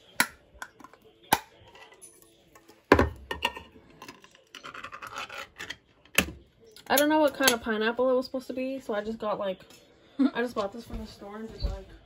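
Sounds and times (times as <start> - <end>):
metal lid tearing rasp: 4.6 - 5.7.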